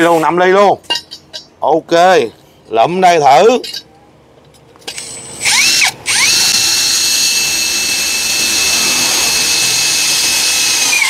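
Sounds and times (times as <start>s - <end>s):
cordless drill driving screw into steel: 4.9s - 11.0s.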